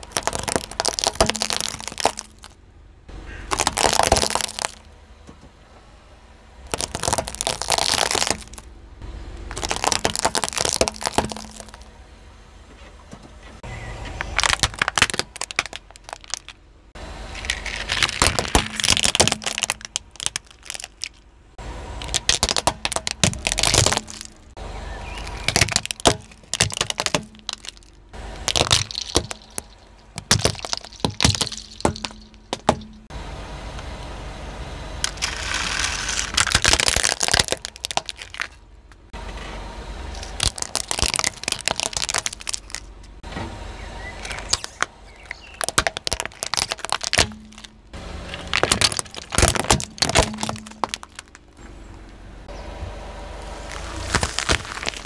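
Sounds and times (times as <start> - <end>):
tyre crushing plastic toys: 0.0 - 2.6, 3.5 - 4.9, 6.7 - 8.7, 9.5 - 11.9, 14.2 - 16.6, 17.3 - 21.3, 22.0 - 33.1, 35.0 - 38.7, 40.1 - 43.2, 44.2 - 51.6, 53.7 - 55.0.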